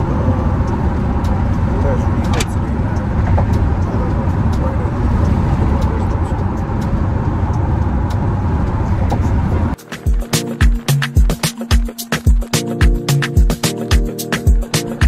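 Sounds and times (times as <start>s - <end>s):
car rumbling on road from inside: 0.0s - 9.8s.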